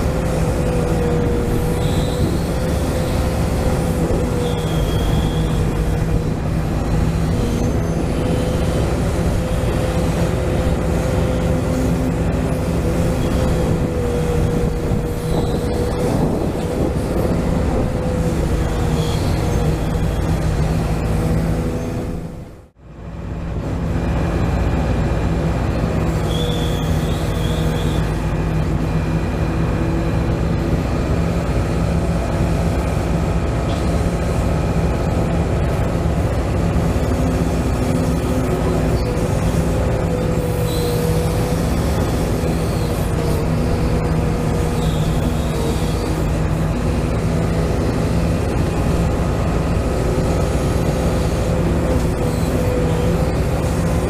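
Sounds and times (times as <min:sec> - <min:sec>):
toy excavator motor humming: 0:35.1 - 0:54.0.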